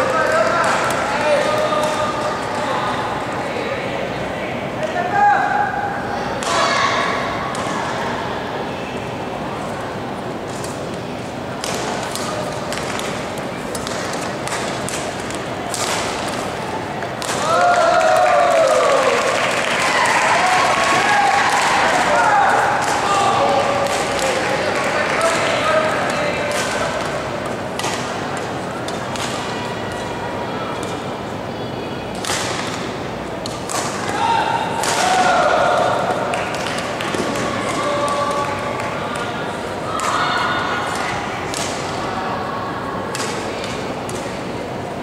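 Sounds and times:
murmur of spectators: 0.0 - 45.0
badminton racket hits: 11.6 - 17.6
rackets hitting shuttlecocks: 11.6 - 17.9, 22.5 - 30.1, 32.1 - 39.3, 43.1 - 44.4.

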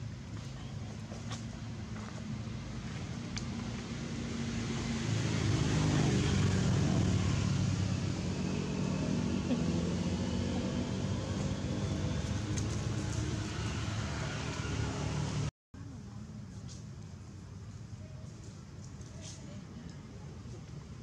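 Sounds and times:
vehicle engine running: 0.0 - 15.5.

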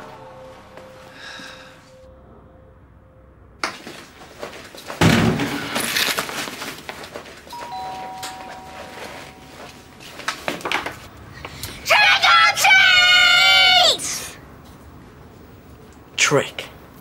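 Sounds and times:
indoor knocks and clattering: 4.9 - 5.8
two-note chime: 7.5 - 9.9.

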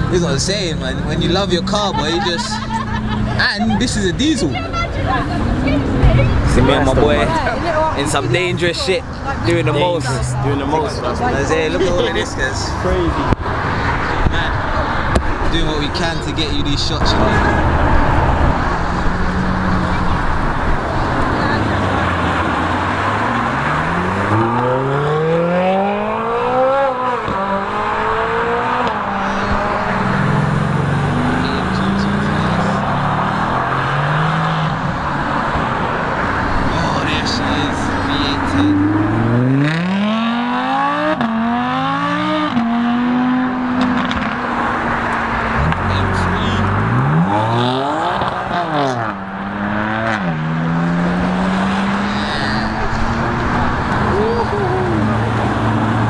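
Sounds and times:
car engine passing: 0.0 - 56.0
road noise: 0.0 - 56.0
sports car engine accelerating: 0.0 - 56.0.

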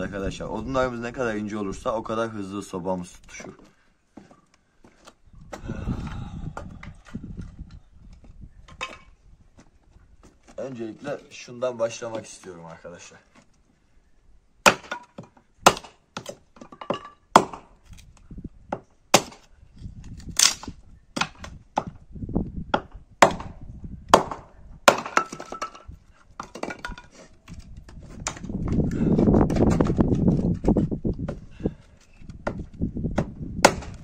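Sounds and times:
hatchet splitting firewood: 14.6 - 22.0, 22.7 - 34.0.

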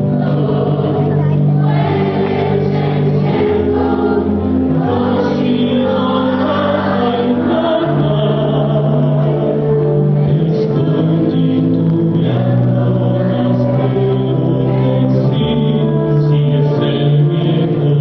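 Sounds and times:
chorus singing over music: 0.0 - 18.0.

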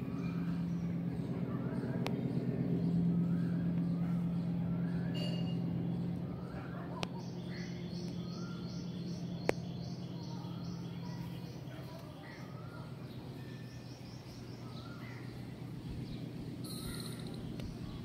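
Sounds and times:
low steady hum: 0.0 - 18.0
small birds chirping: 0.0 - 18.0.

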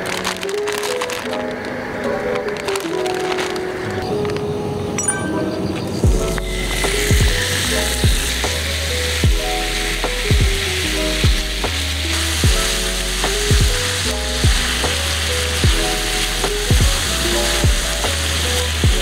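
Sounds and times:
background music with steady beat: 5.0 - 19.0
meat sizzling in a frying pan: 6.2 - 19.0.

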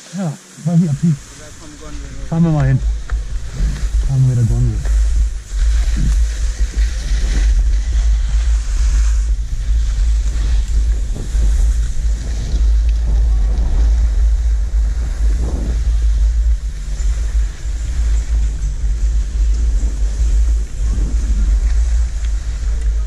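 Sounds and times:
skis scraping over snow: 0.0 - 23.0
wind buffeting microphone: 0.8 - 23.0.

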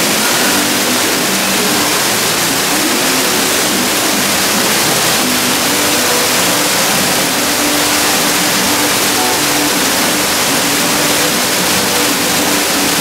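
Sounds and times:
waterfall pouring onto rocks: 0.0 - 13.0.

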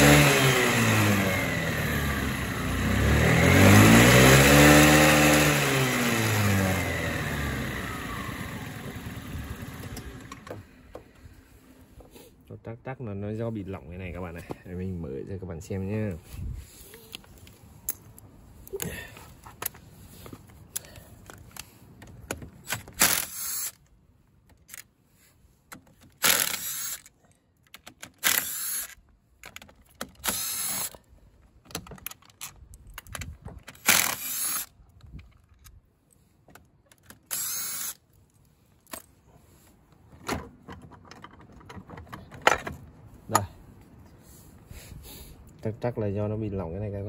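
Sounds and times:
cordless drill spinning bolts: 22.6 - 23.8, 26.0 - 27.1, 27.7 - 31.0, 33.7 - 35.4, 37.0 - 38.0.

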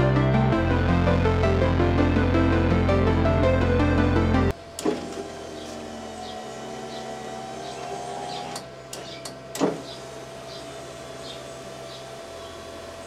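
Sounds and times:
power window motor droning: 4.8 - 13.0.

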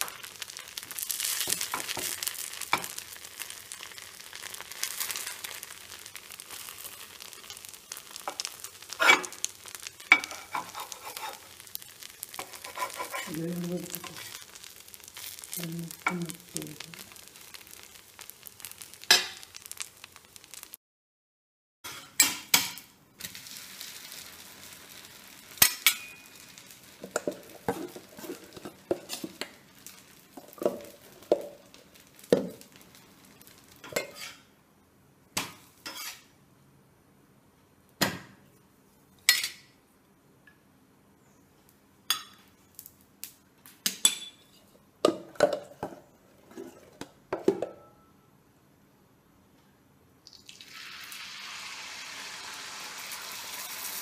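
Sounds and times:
sizzling: 0.0 - 20.8, 21.8 - 36.8, 37.9 - 40.6, 41.6 - 48.3, 49.6 - 54.0
spatula scraping pan: 8.1 - 16.2, 27.0 - 31.5, 33.8 - 34.5, 35.8 - 36.3.

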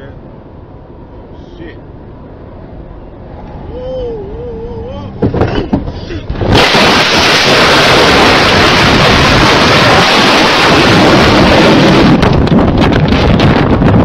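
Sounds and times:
wind roaring over microphone: 2.0 - 14.0
crackles and knocks: 5.2 - 14.0.

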